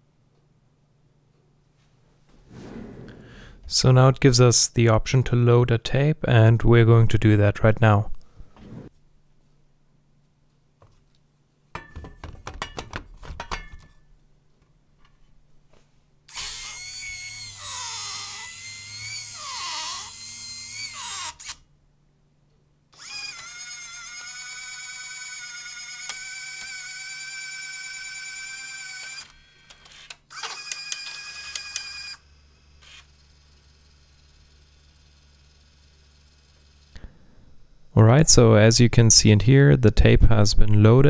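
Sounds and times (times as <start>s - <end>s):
loader motors whining: 23.0s - 37.9s.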